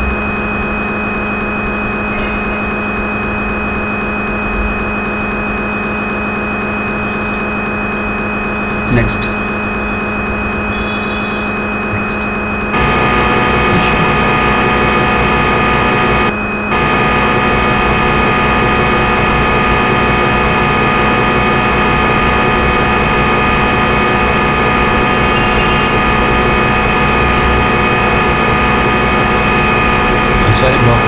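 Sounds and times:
lathe spindle humming: 0:11.4 - 0:31.0.

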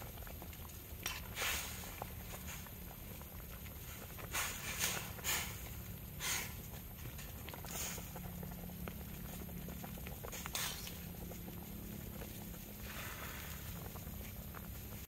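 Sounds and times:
wood fire crackling: 0:00.0 - 0:15.0
metal spoon stirring broth in wok: 0:01.0 - 0:01.8.

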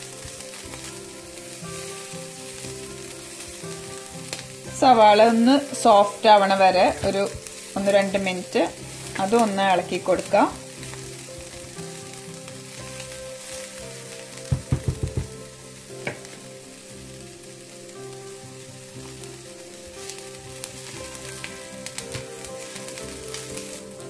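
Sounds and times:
food sizzling in oil: 0:00.0 - 0:24.0
quick knocks: 0:14.5 - 0:15.4.

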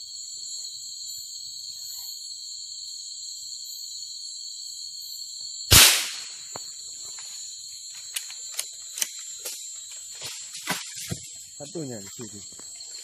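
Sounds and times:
night insects trilling: 0:00.0 - 0:13.0
rifle shot: 0:05.7 - 0:06.4.

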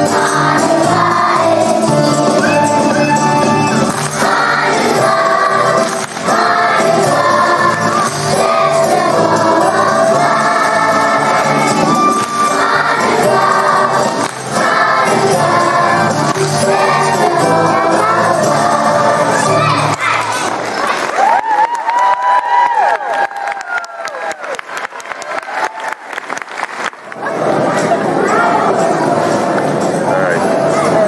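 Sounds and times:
musical accompaniment: 0:00.0 - 0:20.7
children's choir singing: 0:00.0 - 0:20.9, 0:27.1 - 0:31.0.

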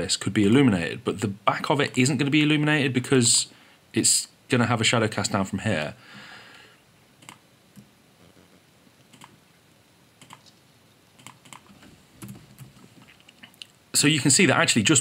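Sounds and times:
computer keys clicking: 0:10.2 - 0:10.5, 0:11.2 - 0:12.7.

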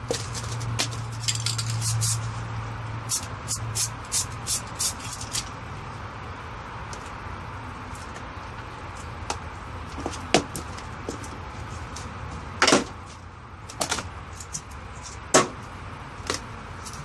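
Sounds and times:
spray can hissing bursts: 0:01.6 - 0:02.3, 0:03.0 - 0:05.2.

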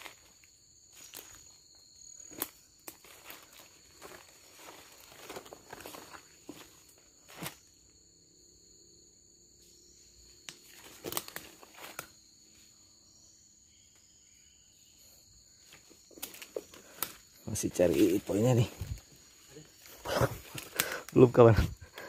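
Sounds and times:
footsteps through leaves and twigs: 0:00.0 - 0:07.8, 0:10.5 - 0:12.5, 0:15.6 - 0:21.8
insects droning: 0:00.0 - 0:22.0.

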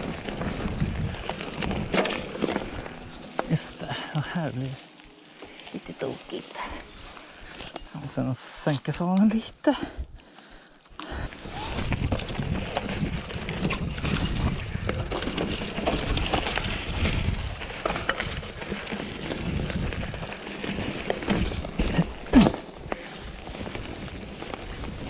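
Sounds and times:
bike drivetrain clattering: 0:00.0 - 0:05.7, 0:11.1 - 0:25.0
bike tyres rolling over dirt: 0:00.0 - 0:25.0.

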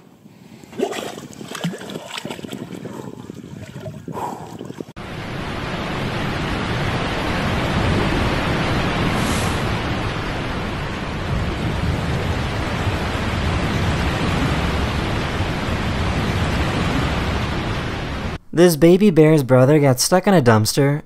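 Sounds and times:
water splashing among ice: 0:00.6 - 0:04.9
waterfall rushing: 0:05.0 - 0:18.4.

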